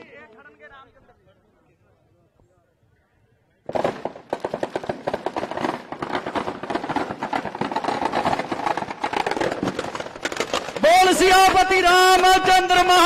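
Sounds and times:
firecrackers crackling: 3.6 - 13.0.

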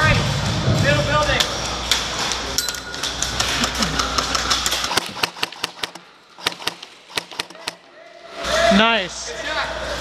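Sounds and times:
steady rumbling noise: 0.0 - 2.0
airsoft gun shots: 4.8 - 7.9.

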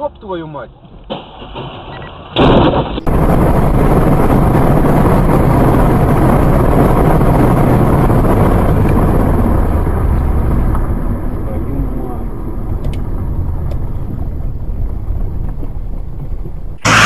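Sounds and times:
road rumble: 0.0 - 17.0
wind buffeting microphone: 2.4 - 16.9
short loud burst: 16.8 - 17.0.

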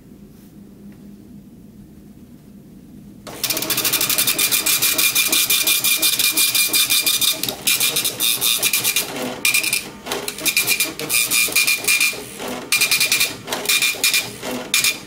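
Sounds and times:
dot-matrix printer rattling: 3.3 - 15.0.

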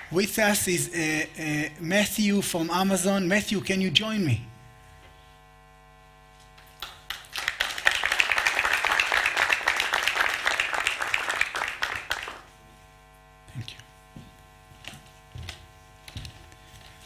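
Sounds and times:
audience applauding: 6.7 - 12.5.

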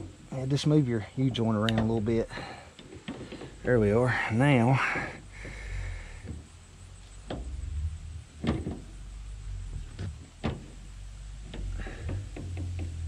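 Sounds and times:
low steady hum: 0.0 - 13.0
metal clunks: 1.6 - 4.0, 4.8 - 5.6, 6.2 - 13.0.

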